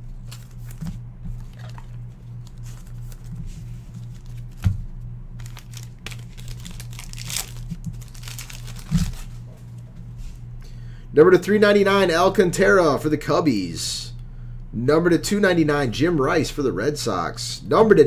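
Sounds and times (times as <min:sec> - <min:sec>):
foil wrappers crinkling: 0:00.0 - 0:09.8
steady low hum: 0:00.0 - 0:18.0.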